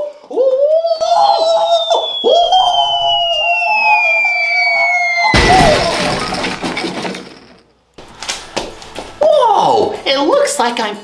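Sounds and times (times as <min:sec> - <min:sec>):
falling whistle: 0:00.5 - 0:06.6
wavering tone: 0:00.8 - 0:06.4
loud crash: 0:01.0 - 0:07.7.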